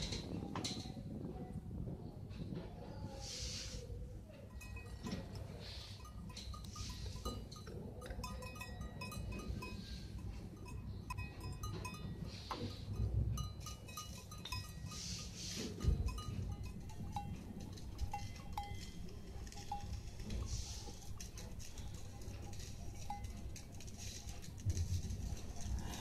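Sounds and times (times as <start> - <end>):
wind rumble on microphone: 0.0 - 5.5.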